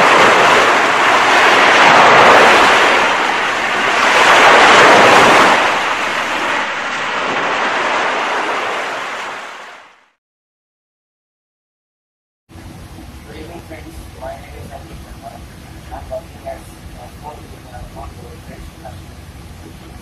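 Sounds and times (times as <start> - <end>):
waves breaking on pebble beach: 0.0 - 10.0.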